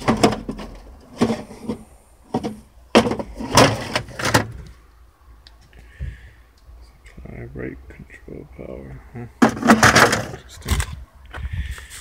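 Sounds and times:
hard plastic clunks and knocks: 0.0s - 4.7s, 9.4s - 10.9s.

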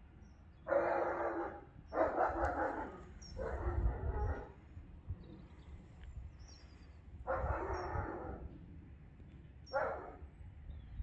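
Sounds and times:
dog barking: 0.7s - 4.6s, 7.3s - 8.4s, 9.7s - 10.2s.

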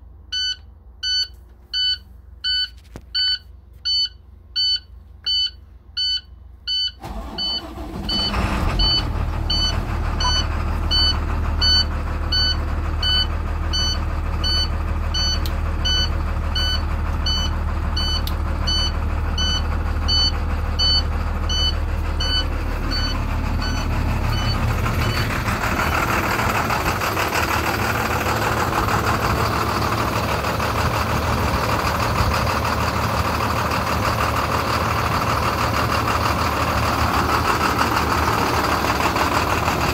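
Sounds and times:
bus engine cranking and idling: 3.6s - 39.9s
rapid electronic warning beeps: 9.5s - 25.2s.

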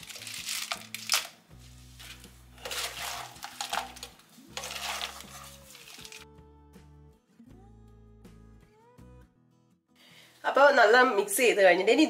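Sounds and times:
wooden spatula scraping pan: 1.6s - 6.2s.

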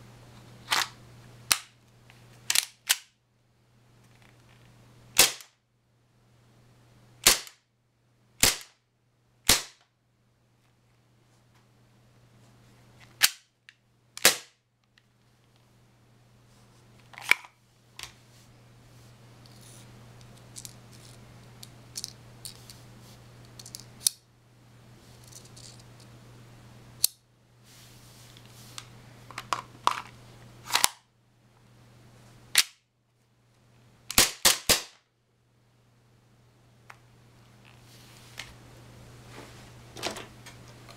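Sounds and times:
airsoft pistol shots: 5.2s - 5.5s, 7.2s - 7.6s, 8.4s - 8.7s, 9.5s - 9.8s, 34.1s - 35.0s.

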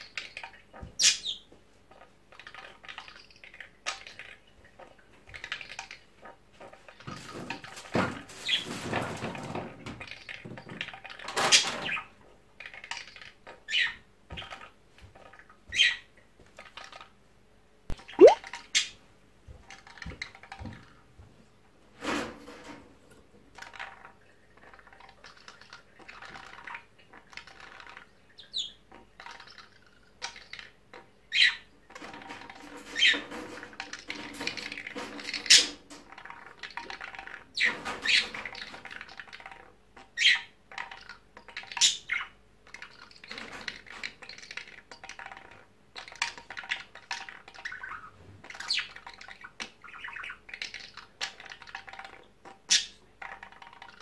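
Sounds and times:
bird mimicking parakeet calls: 18.1s - 18.4s
upward-sweeping bird call: 18.2s - 18.4s.

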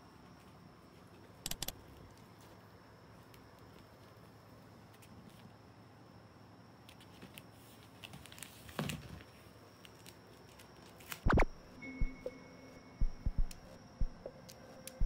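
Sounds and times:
loud thumps: 11.3s - 12.2s.

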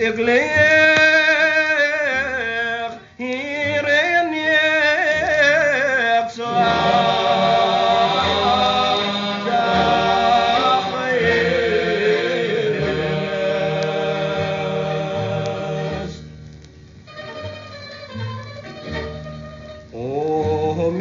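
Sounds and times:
voices singing together: 0.0s - 16.3s.

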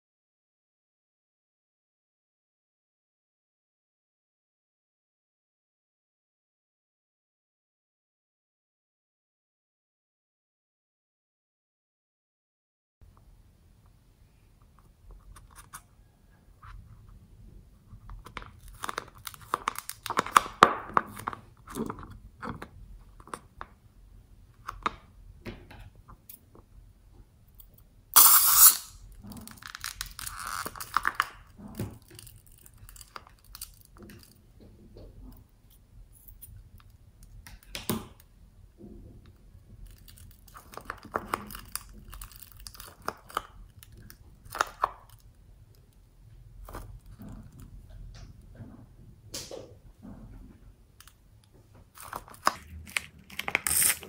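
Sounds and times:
rubbery rubbing and crackles: 17.8s - 23.6s, 28.2s - 35.4s, 39.6s - 45.3s, 51.7s - 54.0s.

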